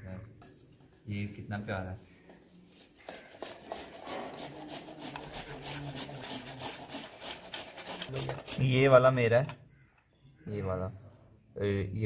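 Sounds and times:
carrots rasping on grater: 3.0s - 9.0s.

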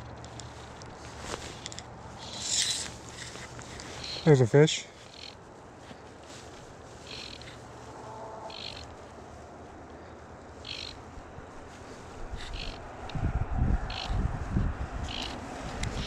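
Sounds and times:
fly line hissing: 1.2s - 4.4s, 7.0s - 9.0s, 10.6s - 11.0s, 11.8s - 12.8s.

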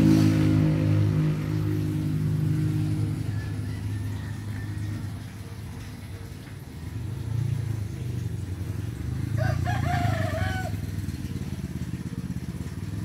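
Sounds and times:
rooster crowing: 3.1s - 5.3s, 9.3s - 10.9s.

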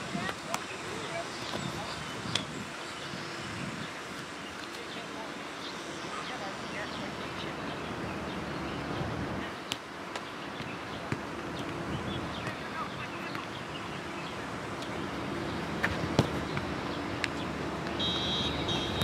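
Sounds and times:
faint distant voices: 0.0s - 15.2s.

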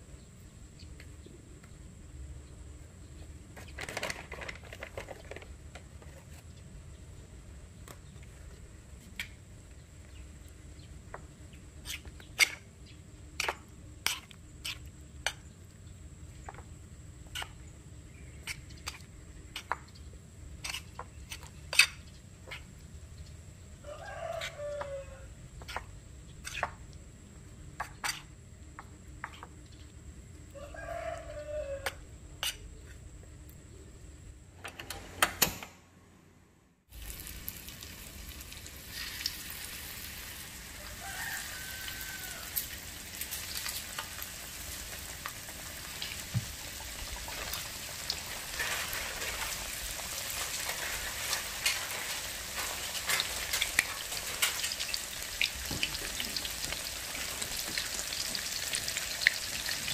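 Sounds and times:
rooster crowing: 23.8s - 25.4s, 30.5s - 32.1s, 40.7s - 42.9s.

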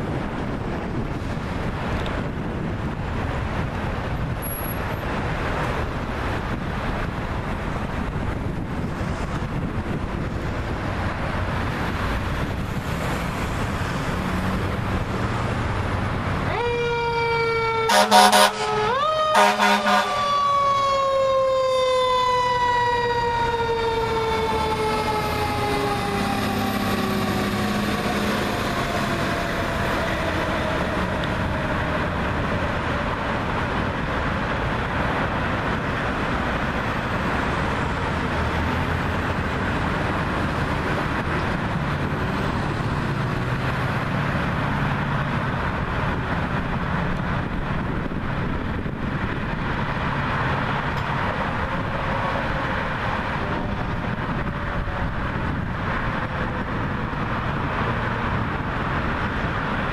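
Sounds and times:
city traffic rumble: 0.0s - 59.9s
mechanical siren wailing: 16.4s - 32.2s.

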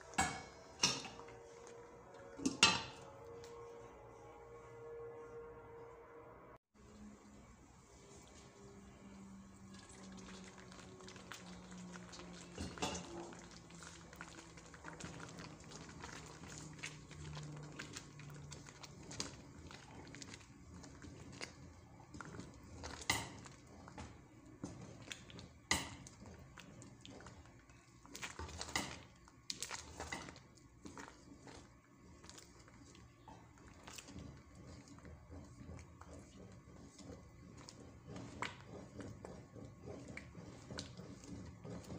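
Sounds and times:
spoon stirring thick rice: 7.8s - 41.9s.

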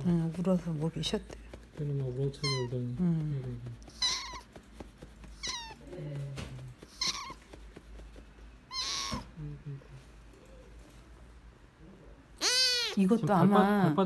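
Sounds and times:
kitten mewing: 2.4s - 2.8s, 3.5s - 4.6s, 5.3s - 7.6s, 8.7s - 9.5s, 12.4s - 13.1s.

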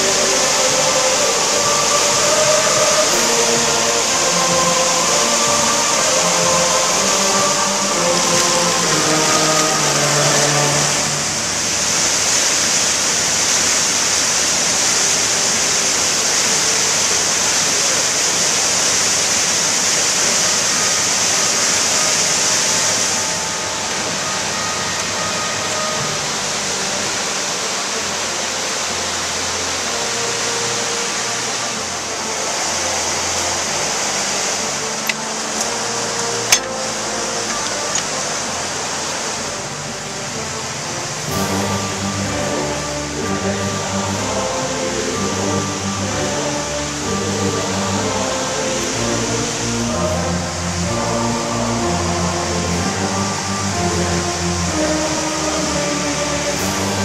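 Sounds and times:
river rapids rushing: 0.0s - 57.0s.

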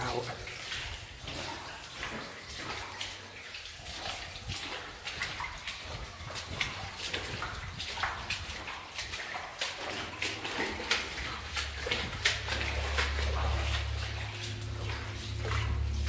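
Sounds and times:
footsteps splashing in shallow water: 0.0s - 16.0s
low rumble: 11.7s - 16.0s.

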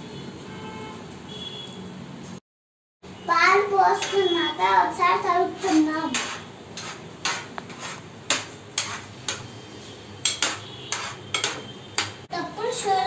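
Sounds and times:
metal spoon scraping a metal pot: 5.6s - 12.3s.

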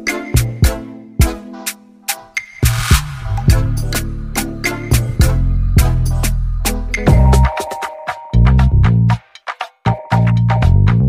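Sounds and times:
electronic dance music: 1.2s - 10.6s
deep bass line: 2.7s - 7.5s, 8.4s - 9.2s, 10.2s - 11.0s.

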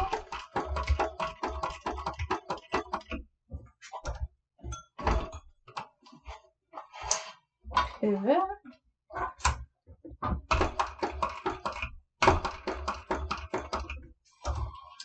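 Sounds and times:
sewing machine stitching: 0.0s - 3.0s.

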